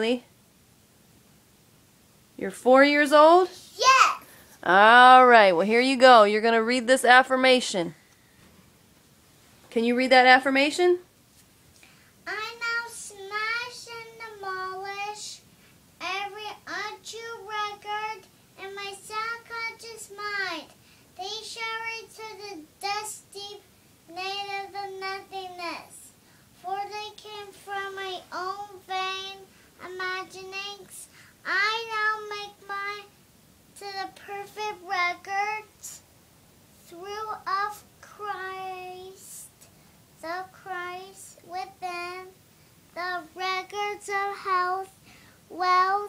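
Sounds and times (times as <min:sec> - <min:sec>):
girl singing: 0:12.3 - 0:15.4, 0:16.0 - 0:33.1, 0:33.8 - 0:36.0, 0:36.9 - 0:39.5, 0:40.2 - 0:42.4, 0:43.0 - 0:46.0.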